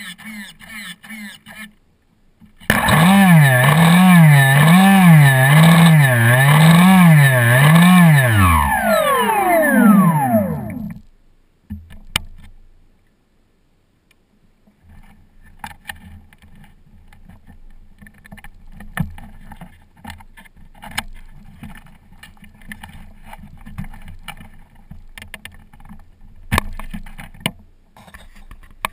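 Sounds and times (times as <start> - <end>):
electric motor whine winding down: 2.7 - 11.0
small ticks and knocks: 11.6 - 12.6, 14.1 - 28.9.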